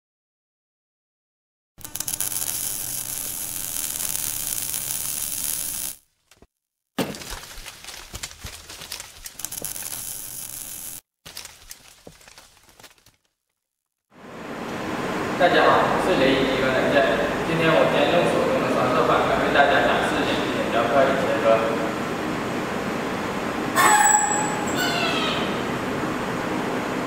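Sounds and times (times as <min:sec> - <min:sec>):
crackling shattering effects: 0:01.8 - 0:06.0, 0:09.4 - 0:11.0.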